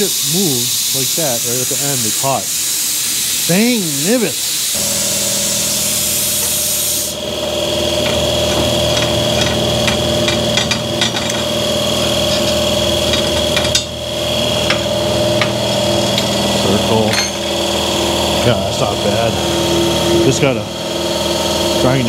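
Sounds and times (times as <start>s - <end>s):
air hissing: 0.0s - 21.8s
electric motor humming: 0.0s - 22.0s
metal piece clinking: 5.4s - 17.7s.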